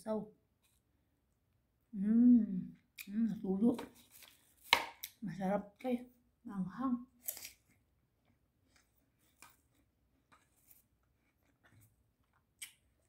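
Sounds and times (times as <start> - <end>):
person eating clicks and smacks: 12.2 - 13.0.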